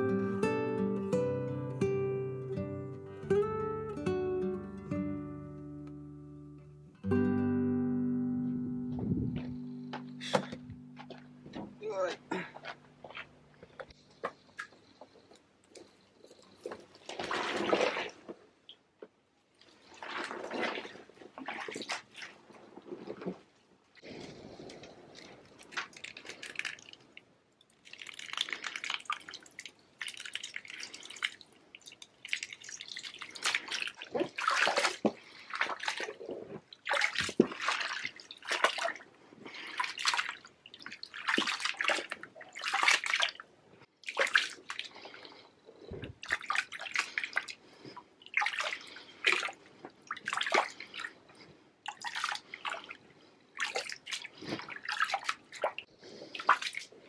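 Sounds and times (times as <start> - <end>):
grapes squelching underfoot: 9.3 - 14.8.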